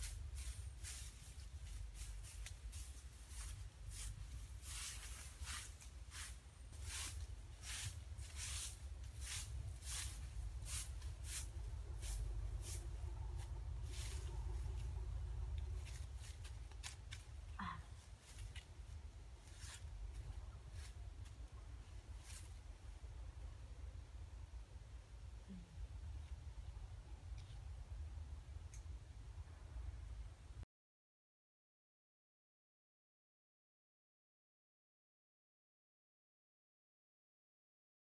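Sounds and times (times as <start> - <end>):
dry grass and leaves rustling: 0.0 - 23.0
low steady rumble: 0.0 - 30.6.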